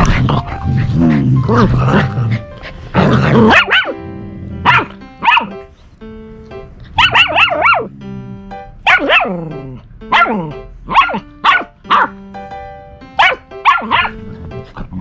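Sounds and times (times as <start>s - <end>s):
background music: 0.0s - 15.0s
puppy yapping: 3.5s - 4.0s, 4.7s - 5.5s, 7.0s - 7.9s, 8.9s - 9.3s, 10.1s - 12.1s, 13.2s - 14.2s.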